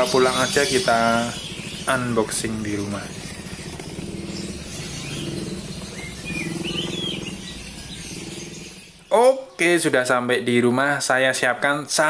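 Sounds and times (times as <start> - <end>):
low engine hum: 0.0 - 9.1
small birds chirping: 0.0 - 11.7.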